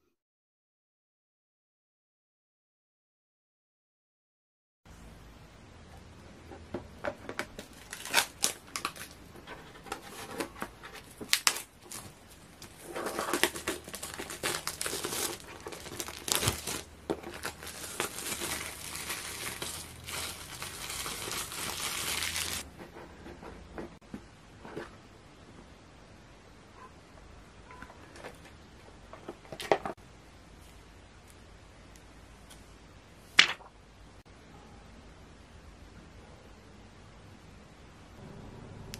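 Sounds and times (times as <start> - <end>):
plastic wrap tearing and crinkling: 7.6 - 9.2, 9.9 - 22.7.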